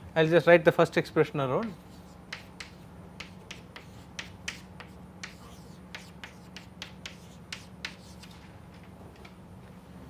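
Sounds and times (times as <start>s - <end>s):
chalk tapping and scraping on chalkboard: 1.6s - 8.5s.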